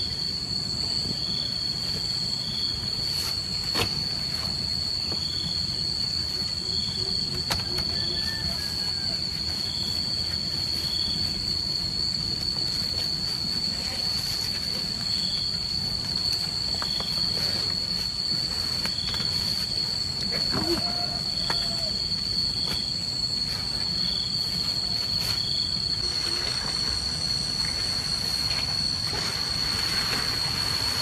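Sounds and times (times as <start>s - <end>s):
insects droning buzz: 0.0s - 31.0s.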